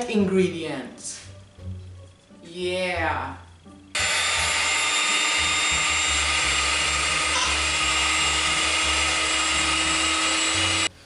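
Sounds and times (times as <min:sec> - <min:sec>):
electric hand mixer beating batter: 0:04.0 - 0:10.9.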